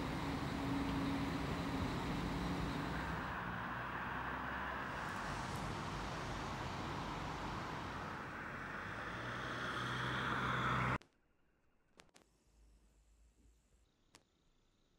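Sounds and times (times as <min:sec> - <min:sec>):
road traffic rushing: 0:00.0 - 0:11.0.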